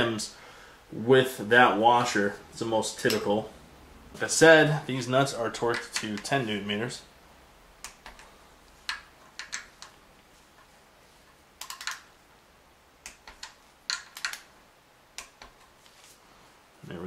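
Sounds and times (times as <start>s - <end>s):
hand tool clicking on nuts: 8.9s - 10.0s, 13.0s - 14.5s.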